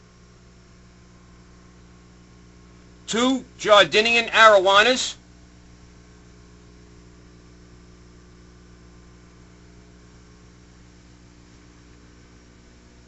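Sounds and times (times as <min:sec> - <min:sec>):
aquarium pump humming: 0:00.0 - 0:13.0.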